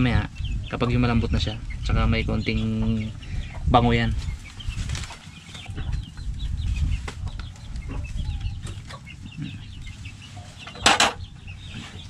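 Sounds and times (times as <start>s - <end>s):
chickens clucking: 0.0s - 12.0s
steady low rumble: 0.0s - 12.0s.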